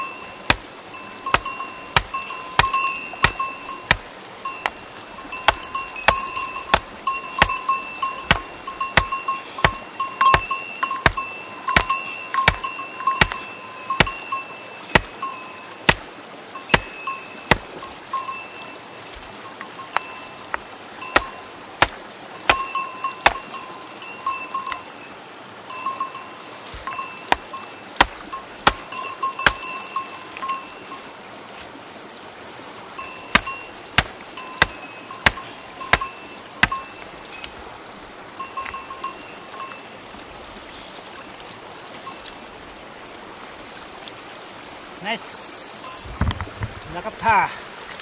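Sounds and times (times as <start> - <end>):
hammer striking stone: 1.3 - 4.0, 5.4 - 14.2, 14.9 - 15.2, 21.2 - 23.5, 27.3 - 29.6, 33.3 - 36.8.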